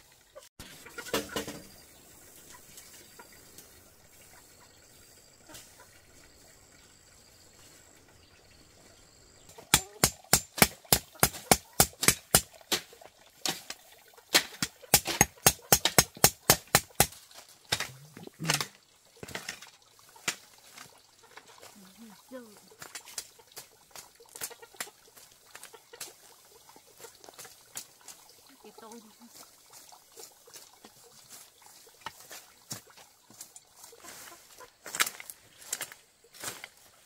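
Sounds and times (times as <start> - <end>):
fast sharp knocks: 9.6 - 12.6, 14.4 - 17.9.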